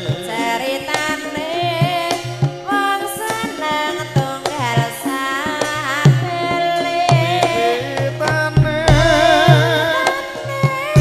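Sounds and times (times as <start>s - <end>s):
hand-drum strokes: 0.0s - 11.0s
person singing wavering melody: 7.1s - 11.0s.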